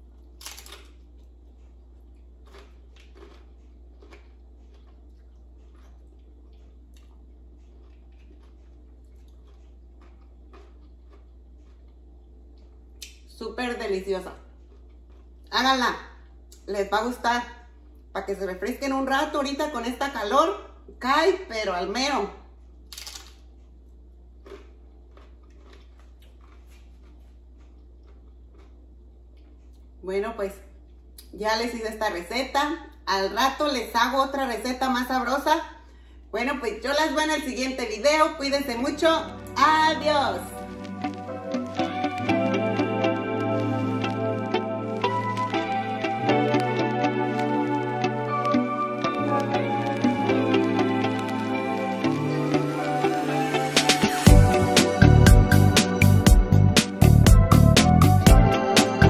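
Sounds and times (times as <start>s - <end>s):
biting crisp food crunch: 0.0s - 13.3s, 14.4s - 15.6s, 22.8s - 30.0s, 40.6s - 52.9s
chewing with wet mouth sounds: 0.0s - 13.3s, 14.4s - 15.6s, 23.5s - 30.0s, 40.6s - 53.2s
low steady hum: 0.0s - 59.0s.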